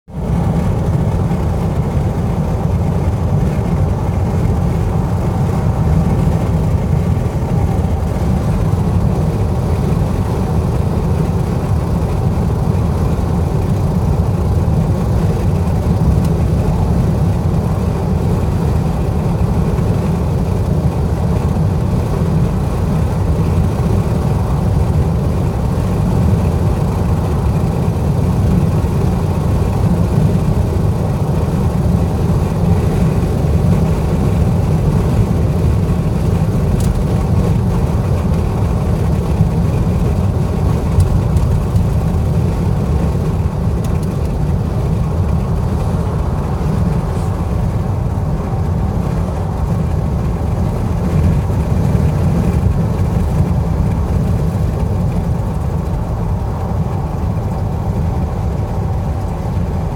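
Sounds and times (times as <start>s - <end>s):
car cabin road and engine rumble: 0.1s - 59.9s.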